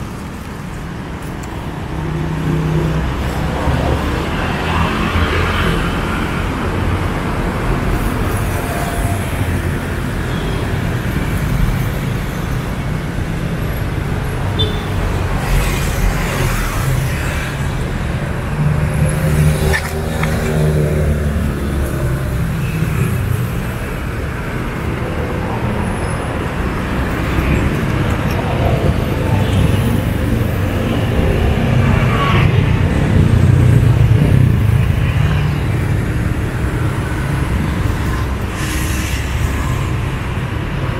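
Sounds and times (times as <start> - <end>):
traffic rumble: 0.0 - 40.9
loud vehicle passing: 15.0 - 40.9.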